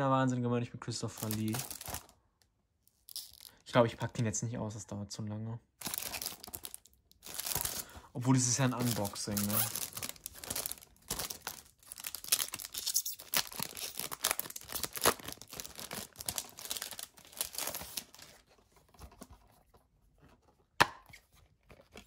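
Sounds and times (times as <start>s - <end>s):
cellophane wrap tearing and crinkling: 1.1s - 2.1s, 3.1s - 3.5s, 5.8s - 18.4s.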